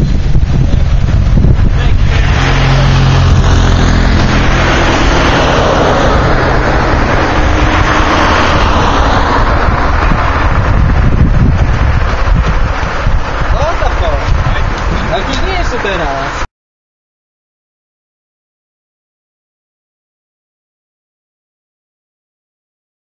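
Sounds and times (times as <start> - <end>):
wind buffeting microphone: 0.0 - 16.4
vehicle passing: 0.2 - 16.5.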